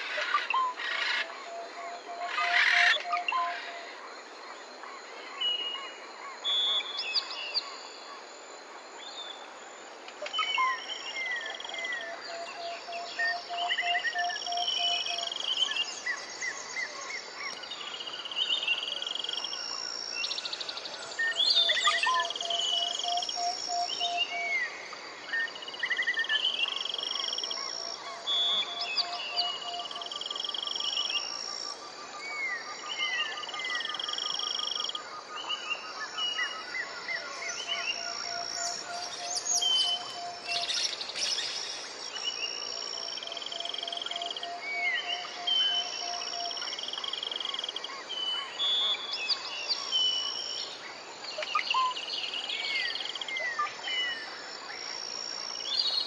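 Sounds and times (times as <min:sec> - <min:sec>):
faint background hiss: 0:00.0 - 0:56.0
birds chirping and whistling: 0:37.2 - 0:42.3.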